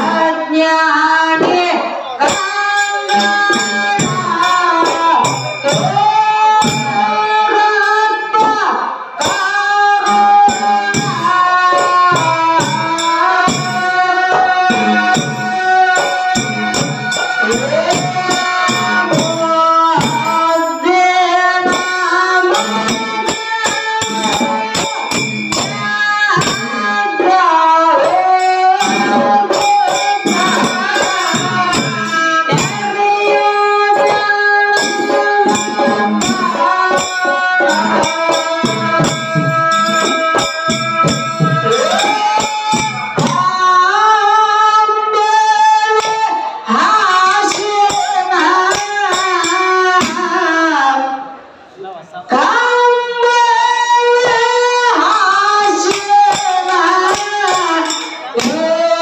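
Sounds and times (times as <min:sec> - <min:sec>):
folk song sung into a microphone: 0:00.0 - 0:59.0
hand cymbals jingling: 0:02.2 - 0:08.0, 0:09.2 - 0:43.6, 0:45.8 - 0:50.3, 0:54.2 - 0:59.0
two-headed hand drum: 0:09.2 - 0:43.8, 0:54.2 - 0:59.0.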